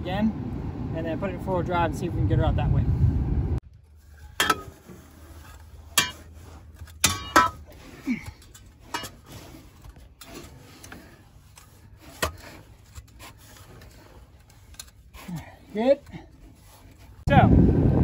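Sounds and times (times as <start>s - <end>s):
shovel scraping through sand: 3.9s - 17.3s.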